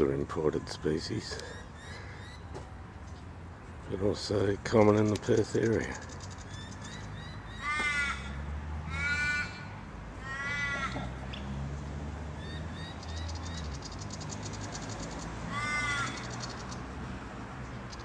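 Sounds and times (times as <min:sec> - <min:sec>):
raven cawing: 0:05.9 - 0:11.2, 0:12.4 - 0:16.9.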